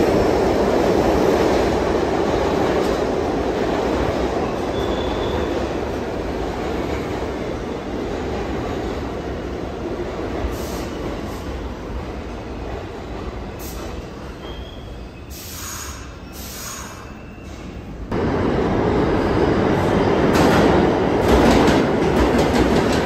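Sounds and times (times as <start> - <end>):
subway train wheels rumbling: 0.0 - 23.0
faint wheel squeals: 14.4 - 17.8.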